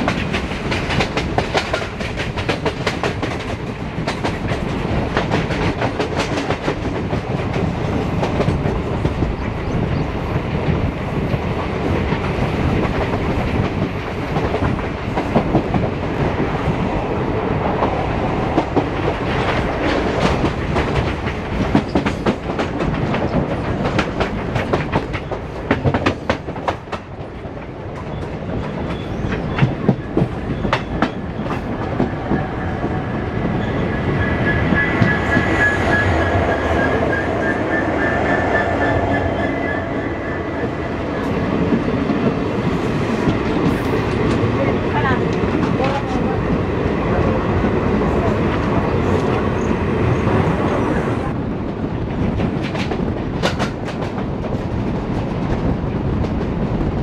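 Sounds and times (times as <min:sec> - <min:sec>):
train wheels rumbling and clattering: 0:00.0 - 0:57.0
high wheel squeal: 0:33.6 - 0:40.4.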